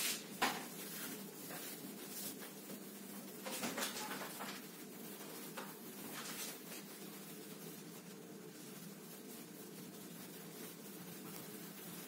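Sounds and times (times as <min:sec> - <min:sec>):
whiteboard duster scraping: 0:00.0 - 0:02.8
steady low hum: 0:04.4 - 0:12.0.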